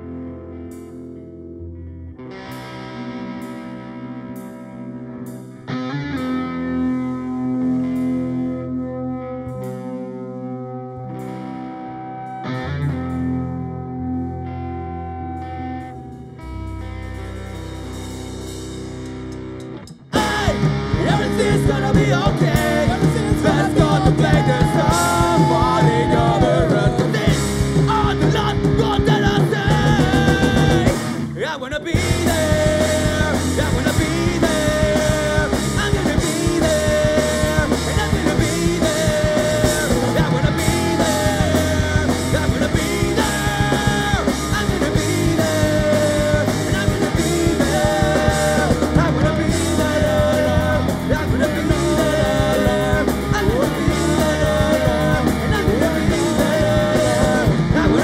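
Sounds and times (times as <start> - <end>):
bass guitar: 0.0 - 58.0
electric guitars: 0.0 - 58.0
drum kit: 15.4 - 58.0
lead vocal singing: 20.1 - 58.0.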